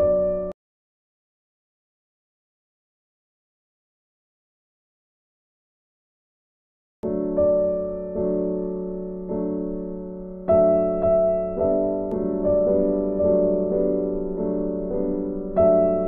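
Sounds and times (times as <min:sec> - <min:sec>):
slow piano music: 0:00.0 - 0:00.6, 0:07.0 - 0:16.0.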